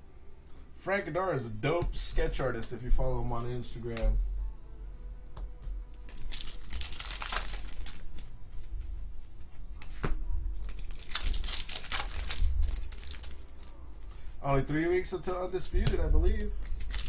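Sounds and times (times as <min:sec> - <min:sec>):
wrapper crinkling and tearing: 0:06.0 - 0:08.4, 0:10.6 - 0:13.8, 0:16.5 - 0:17.0.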